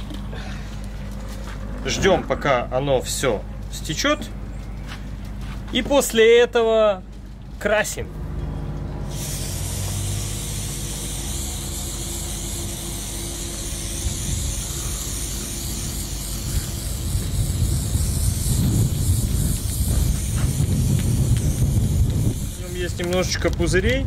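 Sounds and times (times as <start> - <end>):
low rumble: 0.0 - 5.3, 7.0 - 23.2
aerosol spray can hissing: 9.1 - 22.8.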